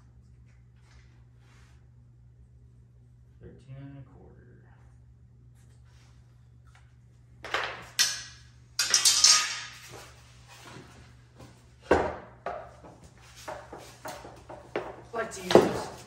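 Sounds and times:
metal t-square clattering down: 7.5s - 10.1s.

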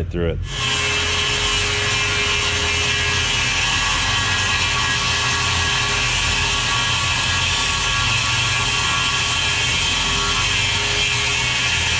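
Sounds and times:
circular saw cutting plastic: 0.5s - 11.9s.

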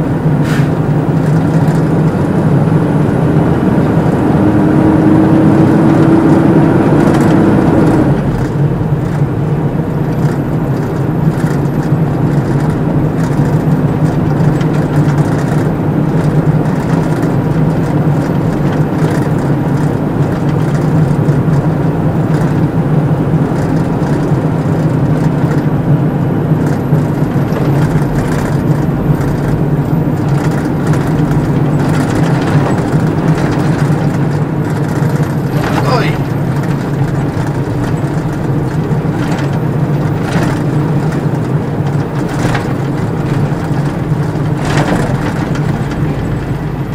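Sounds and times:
heavy truck engine running: 0.0s - 46.9s
knocks and rattles: 26.6s - 46.9s.

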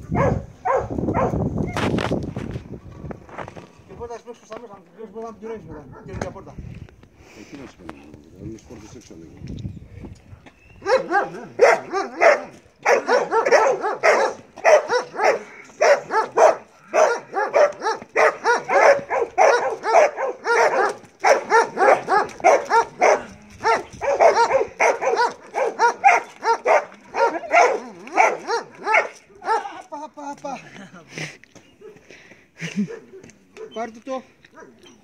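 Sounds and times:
dog barking rapidly: 0.1s - 1.8s, 10.8s - 29.7s.

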